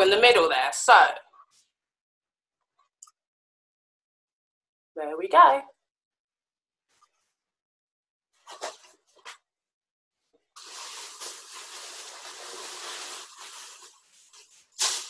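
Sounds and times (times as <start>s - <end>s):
scratchy sounds: 10.6s - 15.0s.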